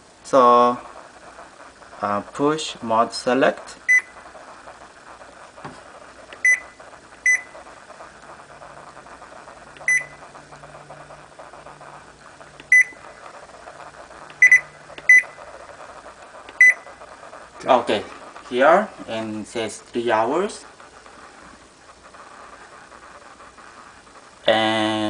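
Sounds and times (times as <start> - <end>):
short high beeps: 9.9 - 10.2, 14.4 - 15.4.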